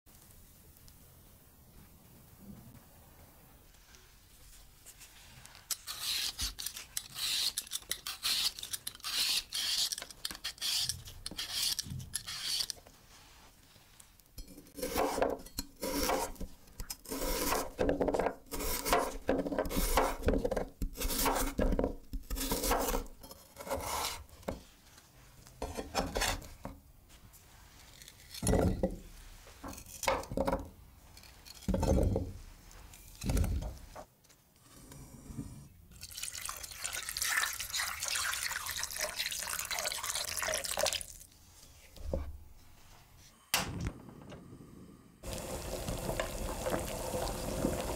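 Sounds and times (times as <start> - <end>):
peeler scraping potato skin: 5.6 - 12.8, 14.6 - 17.8, 18.5 - 24.3.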